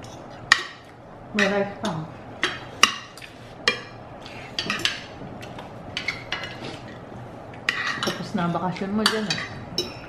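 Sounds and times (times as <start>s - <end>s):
cutlery clinking on plates: 7.7s - 8.3s.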